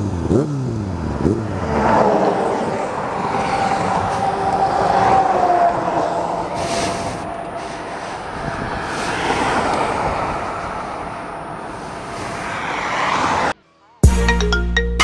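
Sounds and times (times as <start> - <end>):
wind rushing over microphone: 2.0 - 13.6.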